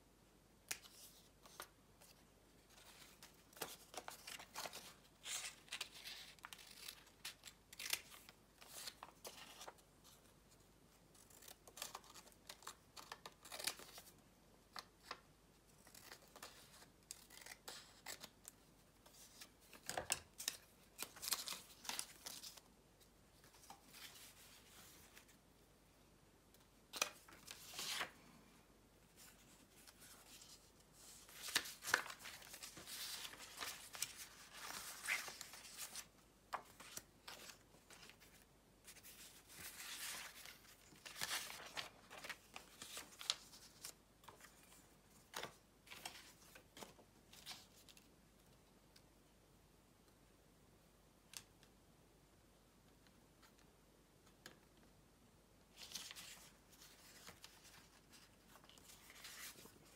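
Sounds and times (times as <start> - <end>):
paper rustling: 29.2 - 48.0, 55.8 - 59.9.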